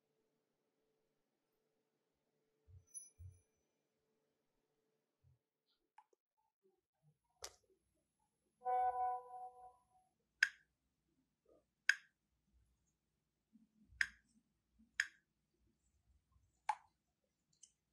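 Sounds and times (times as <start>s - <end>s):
steady pitched tone: 8.6s - 9.8s.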